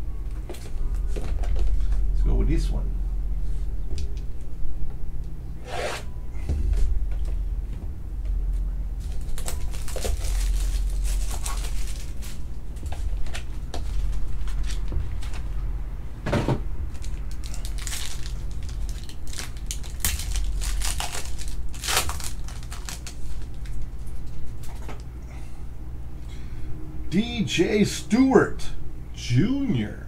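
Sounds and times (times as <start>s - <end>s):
low hum: 0.0s - 30.0s
plastic wrapper crinkling: 9.0s - 15.4s, 16.9s - 25.0s.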